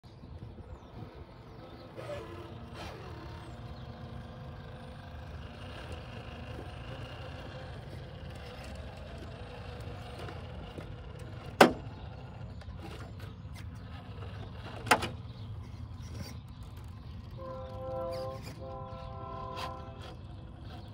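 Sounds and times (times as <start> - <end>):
electric motor whining: 1.2 - 14.9, 15.7 - 20.9.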